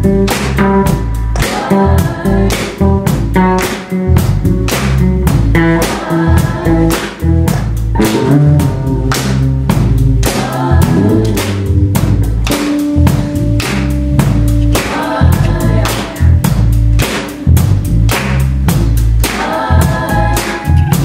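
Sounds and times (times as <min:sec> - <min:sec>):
live rock band playing: 0:00.0 - 0:21.0
people singing: 0:00.9 - 0:03.2, 0:05.6 - 0:07.3, 0:09.9 - 0:11.8, 0:14.7 - 0:16.4, 0:19.2 - 0:21.0.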